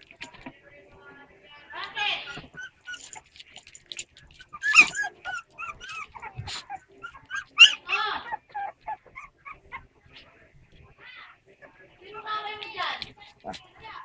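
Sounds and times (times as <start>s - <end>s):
puppies whimpering and yipping: 2.0s - 10.2s.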